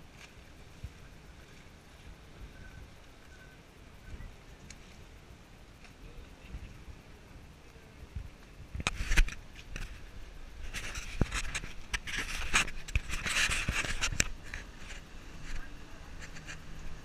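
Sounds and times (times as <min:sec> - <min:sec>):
camera housing scraping: 0:08.8 - 0:10.0, 0:10.6 - 0:14.7.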